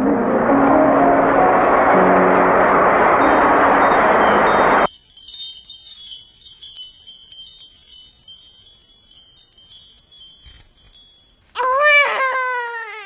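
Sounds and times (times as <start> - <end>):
tinkling wind chimes: 2.8 - 11.5
baby crying: 11.6 - 13.0.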